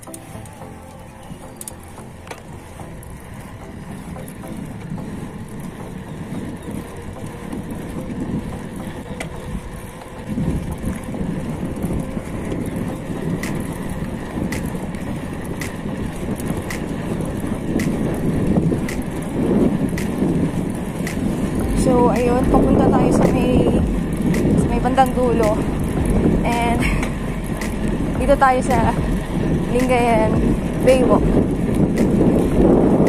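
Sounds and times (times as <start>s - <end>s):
bicycle tyre rumble on concrete: 0.0s - 33.0s
wind buffeting microphone: 0.0s - 33.0s.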